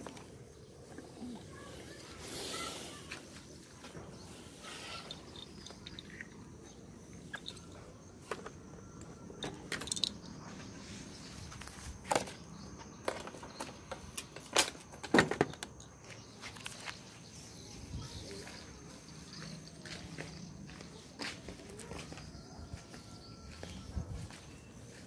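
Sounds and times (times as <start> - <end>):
footsteps on dirt path: 16.0 - 25.0.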